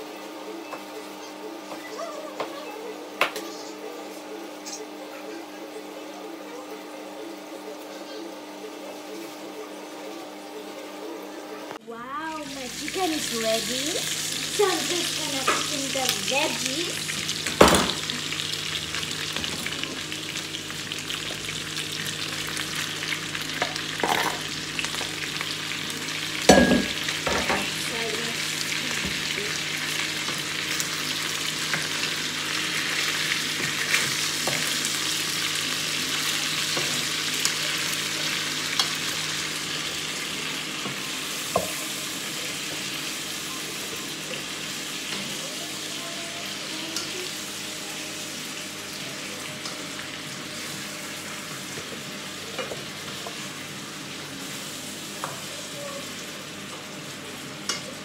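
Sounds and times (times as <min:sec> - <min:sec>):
food sizzling in a frying pan: 0:00.0 - 0:58.0.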